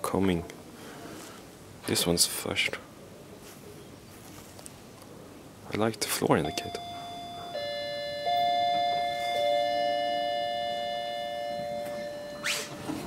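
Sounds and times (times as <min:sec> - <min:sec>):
elevator chime gong tones: 0:06.4 - 0:13.0
elevator doors sliding open: 0:06.8 - 0:13.0.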